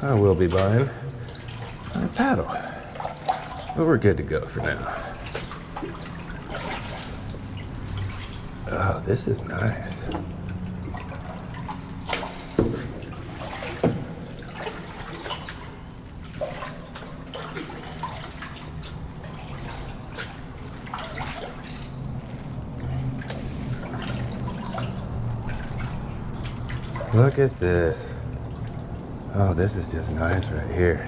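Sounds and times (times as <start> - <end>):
paddle splashing water: 0.0 - 29.2
low steady hum: 0.0 - 31.0.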